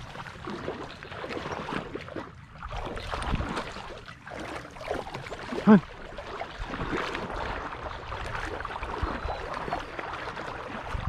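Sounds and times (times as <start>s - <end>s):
water sloshing from wading: 0.0s - 11.0s.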